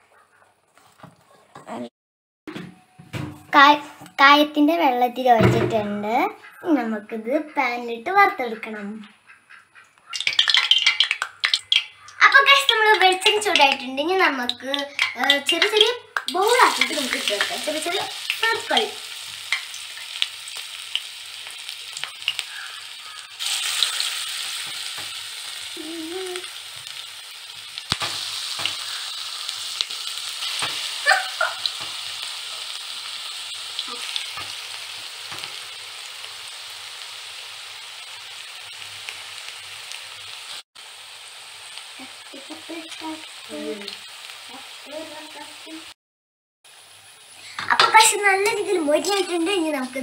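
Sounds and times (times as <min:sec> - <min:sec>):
oil popping: 0:10.0 - 0:32.6
fritters deep-frying in oil: 0:10.1 - 0:46.0, 0:46.7 - 0:50.0.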